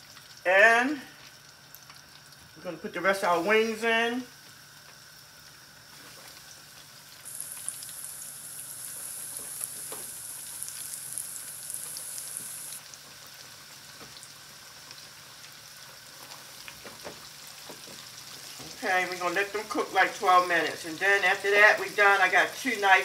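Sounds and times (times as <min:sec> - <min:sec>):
chicken deep-frying in oil: 0:00.0 - 0:23.0
high hiss: 0:07.2 - 0:12.8.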